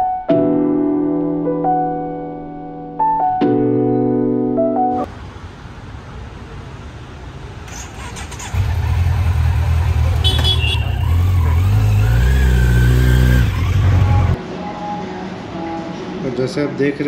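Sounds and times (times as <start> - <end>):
motorcycle engine revving: 7.7 - 14.4.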